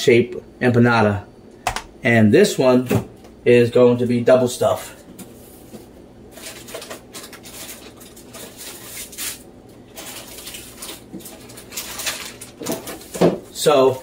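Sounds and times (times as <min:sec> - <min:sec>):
kitchen items rustling and knocking: 0:05.1 - 0:13.6.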